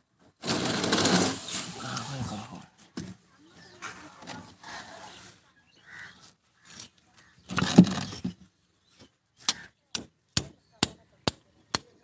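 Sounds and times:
steel rod scraping concrete: 0.4s - 2.1s.

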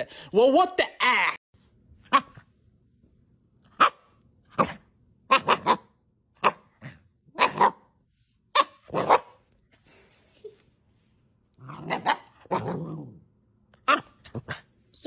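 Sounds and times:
puppy barking: 2.0s - 2.5s, 3.7s - 9.4s, 11.7s - 12.8s, 13.8s - 14.6s.

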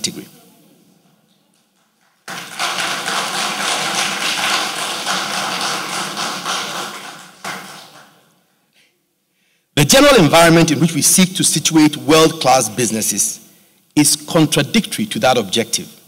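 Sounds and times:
audience applauding: 1.5s - 8.3s.

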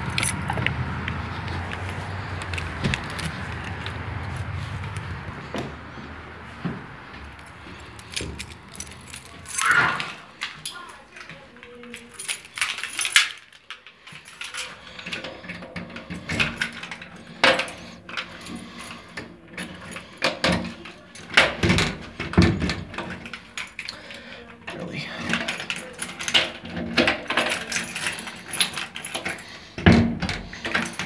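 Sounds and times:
metallic lock clicks and rattles: 0.0s - 0.8s, 7.4s - 24.1s, 24.7s - 31.0s
keys jangling: 0.0s - 6.0s, 7.1s - 31.0s.

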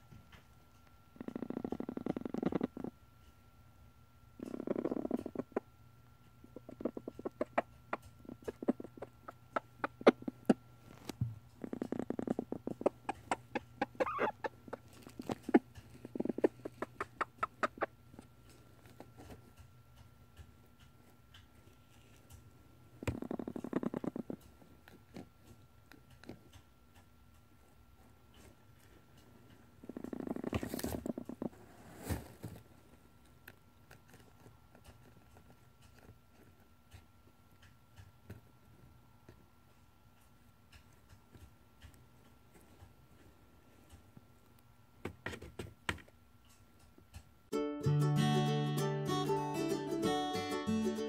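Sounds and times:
faint scattered ticks: 0.1s - 3.5s, 4.4s - 31.6s
hen purring: 1.1s - 3.1s, 4.3s - 19.6s, 21.4s - 26.7s, 28.3s - 32.9s
hen clucking softly: 4.4s - 5.8s, 6.4s - 10.6s, 11.6s - 18.2s
beak tapping an egg: 6.5s - 10.6s, 12.2s - 18.0s.

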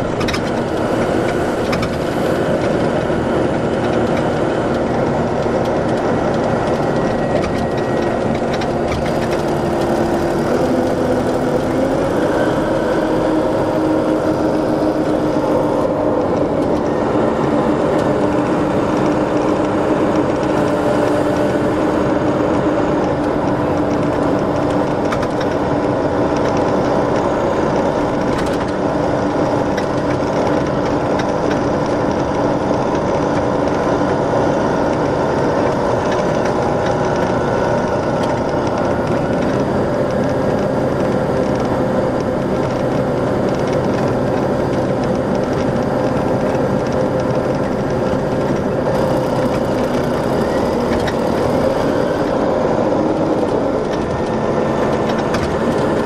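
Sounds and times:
diesel coach engine running: 0.0s - 56.0s.

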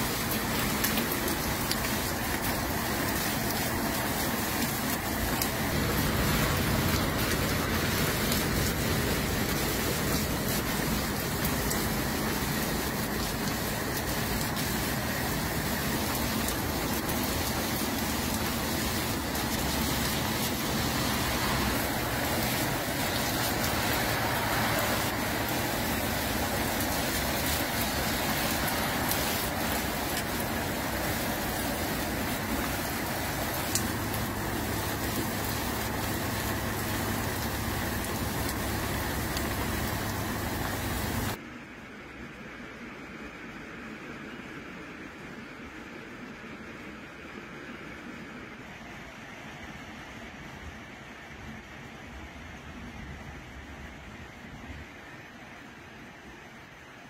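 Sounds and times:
hailstones clicking: 0.0s - 41.4s
rain hissing: 0.0s - 41.4s.

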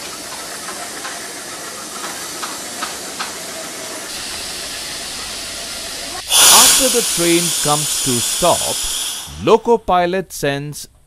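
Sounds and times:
compressed air hissing: 4.1s - 9.6s.

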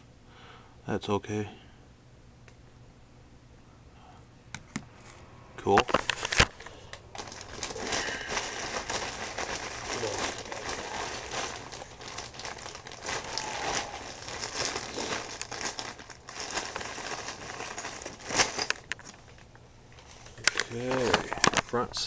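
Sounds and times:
plastic bag crinkling: 5.8s - 21.8s.

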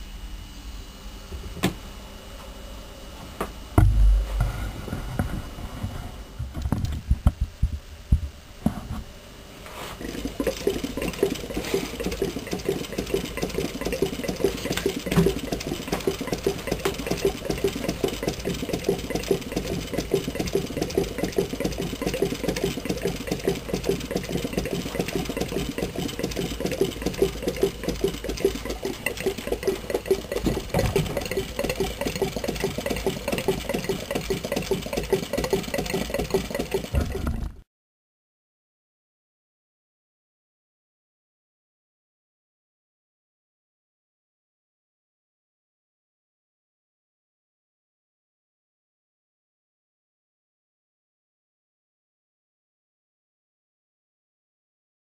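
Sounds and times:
hot-air engine clattering: 10.0s - 37.5s
mechanical knocks: 12.4s - 37.6s.

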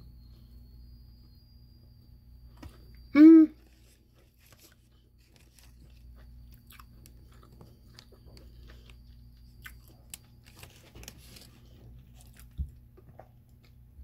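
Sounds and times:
person chewing food: 3.6s - 13.8s.

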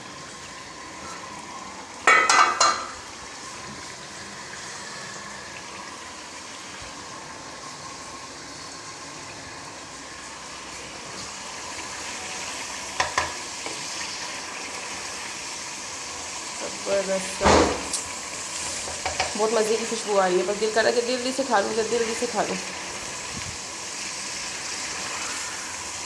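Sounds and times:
food sizzling in a pan: 0.0s - 26.0s
metal cookware clattering: 2.0s - 3.0s.

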